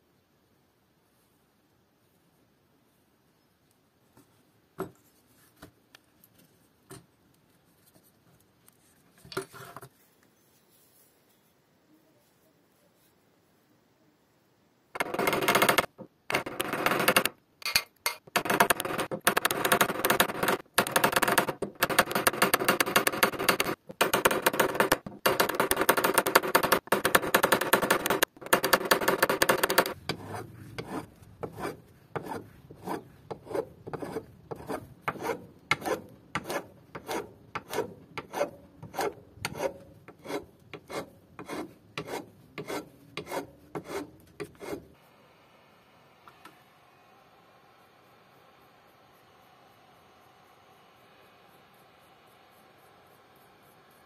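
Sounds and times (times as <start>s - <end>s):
hammer tapping on metal rivets: 15.0s - 30.0s
file stroking across wood: 25.6s - 44.9s.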